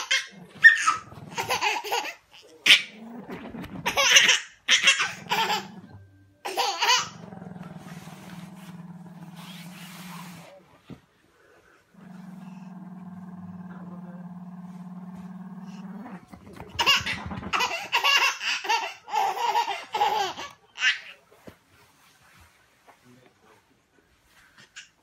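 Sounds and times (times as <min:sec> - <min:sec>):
baby laughing: 0:00.0 - 0:02.9, 0:03.8 - 0:07.2, 0:16.6 - 0:21.1
dog growling: 0:00.0 - 0:06.1, 0:06.8 - 0:10.6, 0:11.6 - 0:19.4.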